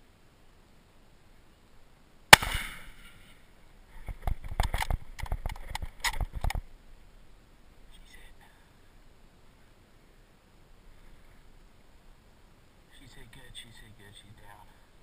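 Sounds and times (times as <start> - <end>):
loud gunshot with echo: 2.3 - 3.0
rustling against microphone: 3.9 - 6.7.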